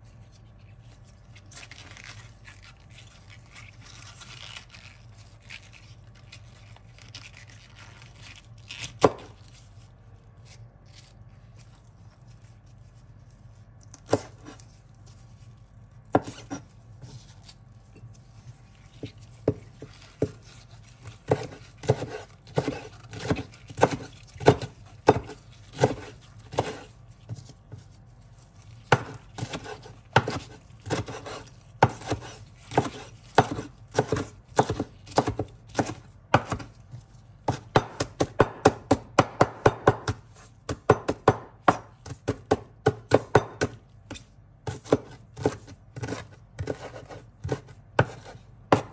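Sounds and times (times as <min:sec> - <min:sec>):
knife chopping on cutting board: 0:09.0 - 0:09.4, 0:14.0 - 0:14.6, 0:16.1 - 0:17.3, 0:19.0 - 0:27.8, 0:28.9 - 0:48.9.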